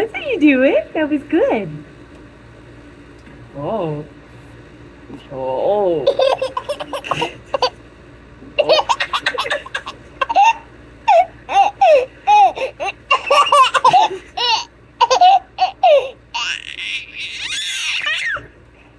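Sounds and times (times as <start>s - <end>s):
baby giggling and squealing: 8.6s - 18.5s.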